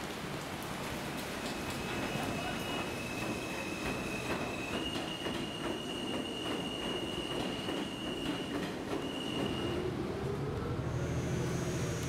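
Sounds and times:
wheels clacking on rails: 1.1s - 10.8s
train wheels squealing: 1.4s - 10.0s.

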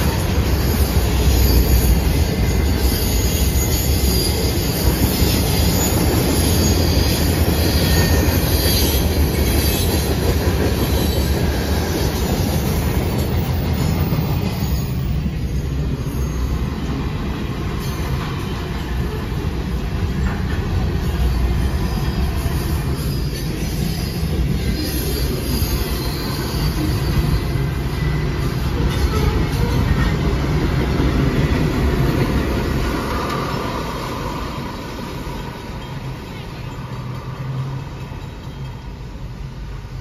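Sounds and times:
high wheel squeal: 0.0s - 30.6s
train wheels rumbling on rail: 0.0s - 40.0s.

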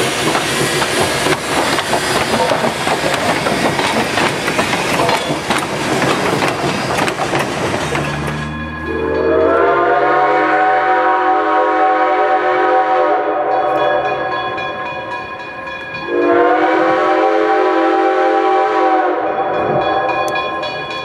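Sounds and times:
steam locomotive whistle chord: 8.3s - 15.0s, 16.0s - 20.5s.

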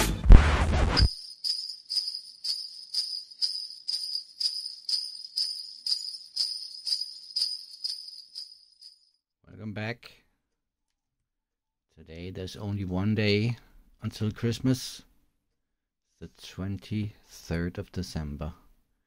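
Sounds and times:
sleigh bells shaken: 1.0s - 9.1s.

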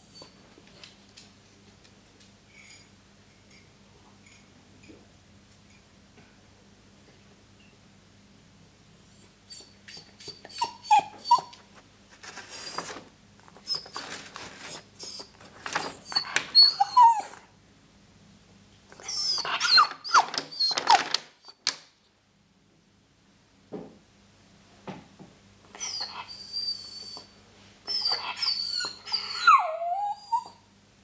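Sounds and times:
puppy whimpering: 9.1s - 11.6s, 13.6s - 17.5s, 18.9s - 21.6s, 25.7s - 27.3s, 27.9s - 30.6s
paper bag rustling: 12.1s - 16.2s.

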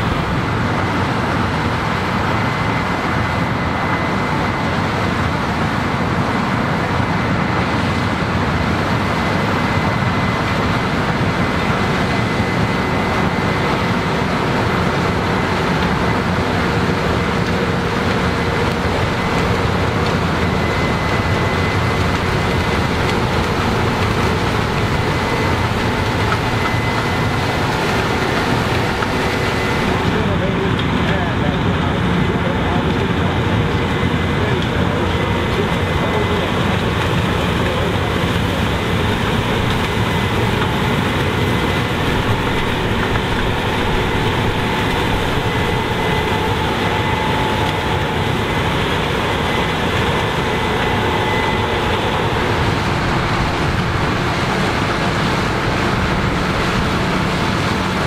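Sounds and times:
combine harvester drone: 0.0s - 58.0s
thin high whine: 33.8s - 57.7s.

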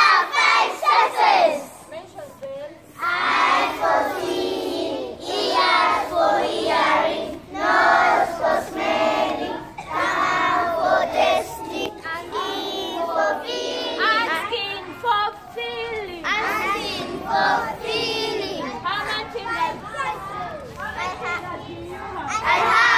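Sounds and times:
children singing together: 3.0s - 14.4s, 16.3s - 18.8s.

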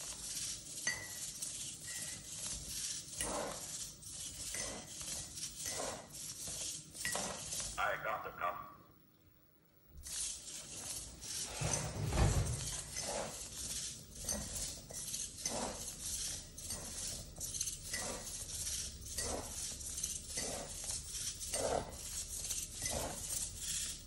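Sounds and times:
mug pushed along floor: 0.0s - 7.8s, 10.0s - 24.0s
servo motors whirring: 10.0s - 24.0s.

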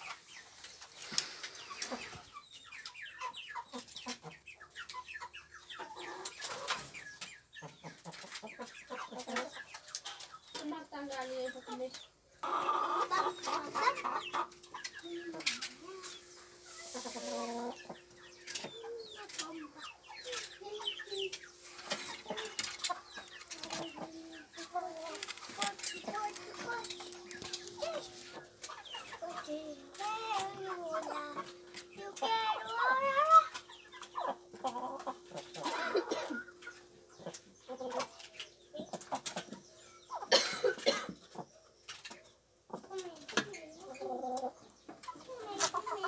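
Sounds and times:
hens clucking: 0.0s - 46.0s.

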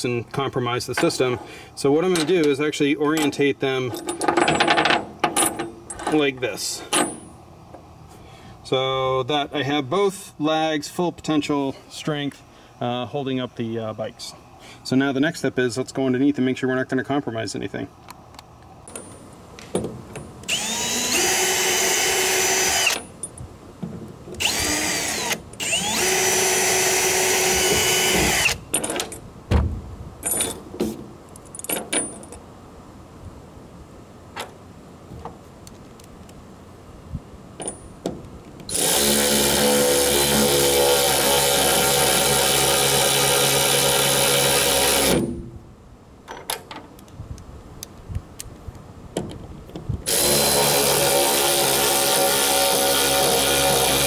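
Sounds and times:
handling clicks and knocks: 2.1s - 7.8s, 46.2s - 47.2s, 47.8s - 49.9s
cordless power tool whining: 20.4s - 23.1s, 24.4s - 28.6s, 38.7s - 45.2s, 50.0s - 54.0s.

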